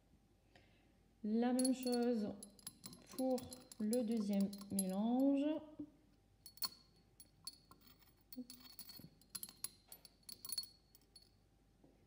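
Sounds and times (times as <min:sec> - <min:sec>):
glass rod clinking in test tube: 0:01.6 - 0:05.4, 0:06.4 - 0:11.4.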